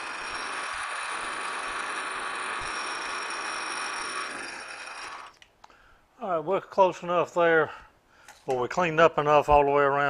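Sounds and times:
high whines: 0.0s - 5.4s
lathe cutting hiss: 0.0s - 5.4s
lathe running: 0.0s - 5.4s.

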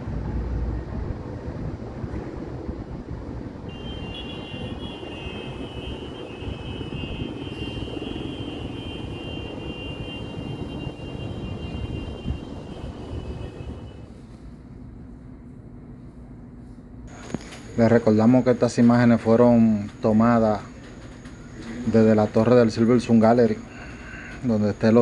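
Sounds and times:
distant city traffic rumble: 0.0s - 25.0s
high-pitched whine: 17.1s - 25.0s.

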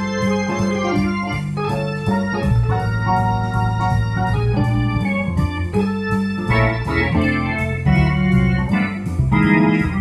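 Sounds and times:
electronic organ playing swing jazz: 0.0s - 10.0s.

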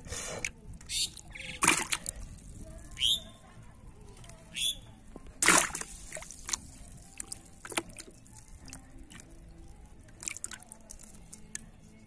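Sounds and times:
small splashes in a bucket: 1.6s - 2.4s, 5.4s - 9.4s, 10.1s - 11.6s
water dripping: 5.4s - 11.6s.

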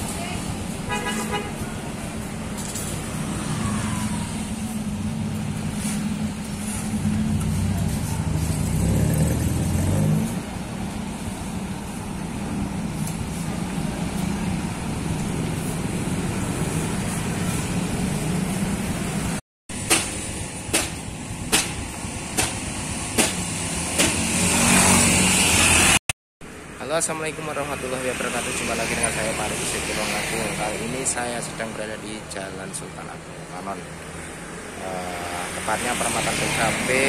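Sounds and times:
passing cars and motorcycles: 0.0s - 19.4s, 20.1s - 37.0s
vehicle engine close by: 1.8s - 19.4s, 27.4s - 37.0s
sharp knocks: 19.8s - 24.3s.

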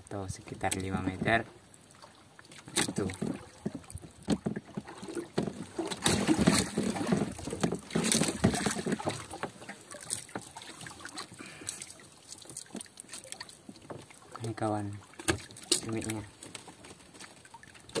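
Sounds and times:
water sloshing against boat: 0.0s - 18.0s
knocks and clatter: 2.8s - 9.6s.

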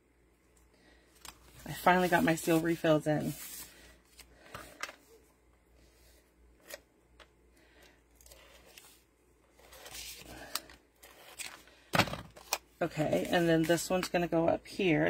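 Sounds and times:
paper rustling and sliding: 1.3s - 4.6s, 9.6s - 11.6s.

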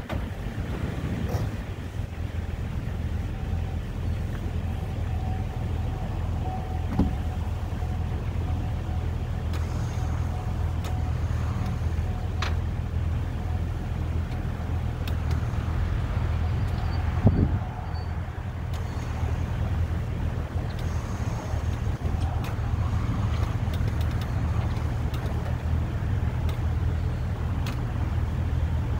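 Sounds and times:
vehicle engine idling: 0.0s - 28.9s
light clicks: 20.6s - 26.9s, 27.5s - 28.0s.

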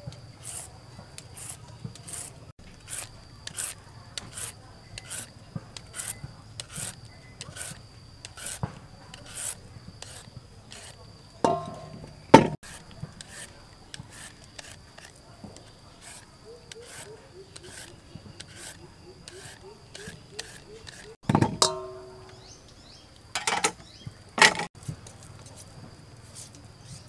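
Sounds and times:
peeler rasping on vegetables: 0.4s - 11.0s, 11.6s - 21.2s
sharp knock: 11.5s - 12.6s.

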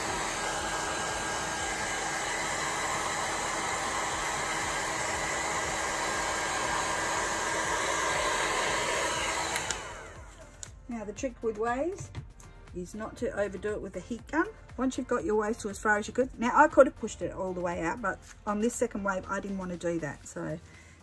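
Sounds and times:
heat gun blowing: 0.0s - 10.7s.

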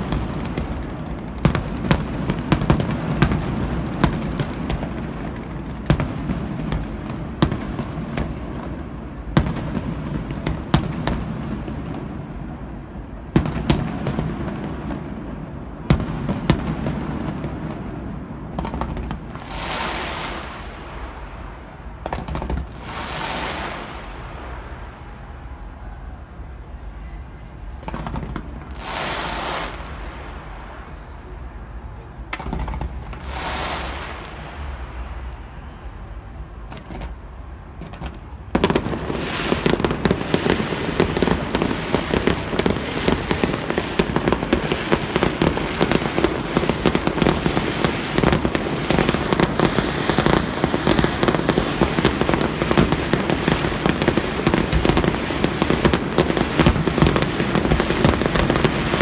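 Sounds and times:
crackling firework barrage: 0.0s - 59.0s
firework bursts: 0.0s - 59.0s.

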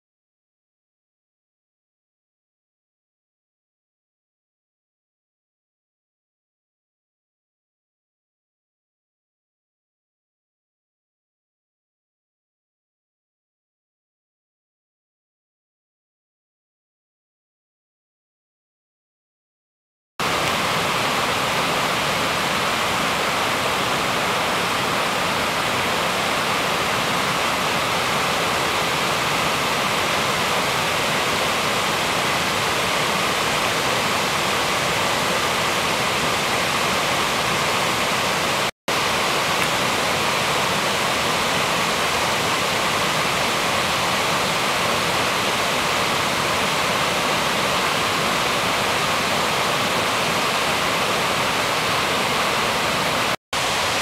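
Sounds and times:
water rushing over rocks: 20.2s - 54.0s.

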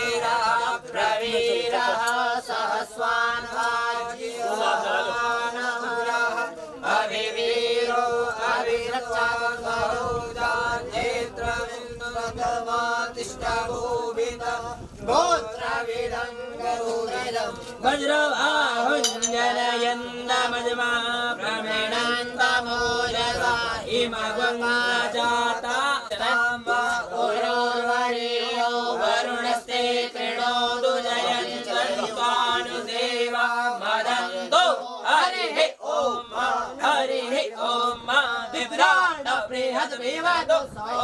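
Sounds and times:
mantras chanted: 0.0s - 41.0s
steady held tone: 19.0s - 19.8s.

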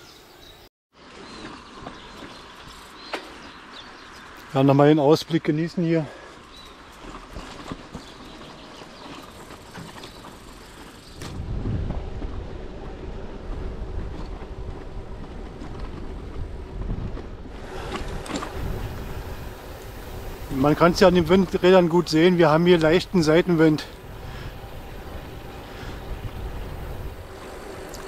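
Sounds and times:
low road rumble: 1.0s - 28.0s
wind buffeting microphone: 10.0s - 28.0s.

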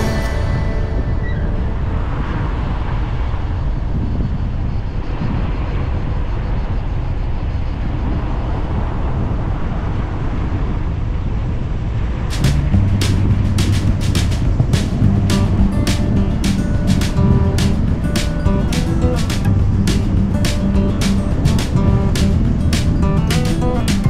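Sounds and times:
music: 0.0s - 1.8s, 12.3s - 24.0s
road and wind noise: 0.0s - 24.0s.

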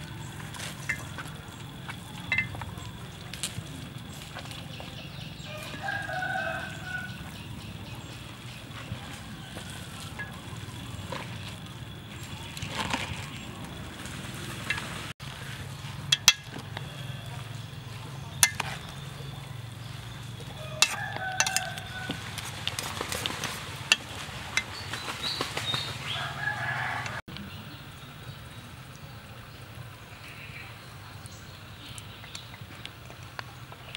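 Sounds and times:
chickens clucking: 0.0s - 3.5s
chopsticks tossing wet noodles: 0.1s - 4.7s, 18.3s - 24.9s
chopsticks clinking on metal bowl: 0.7s - 1.3s, 2.1s - 3.0s, 10.1s - 10.5s, 16.0s - 17.0s, 18.3s - 19.3s, 20.5s - 22.2s, 23.9s - 24.8s
rooster crowing: 5.4s - 7.4s, 20.5s - 22.5s, 26.1s - 27.2s.

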